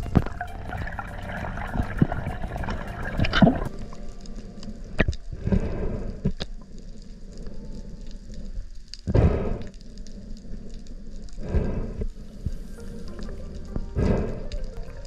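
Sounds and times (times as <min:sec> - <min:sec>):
underwater wash of moving water: 0:00.0 - 0:09.5, 0:11.0 - 0:15.0
sharp clicks and crackles: 0:03.2 - 0:15.0.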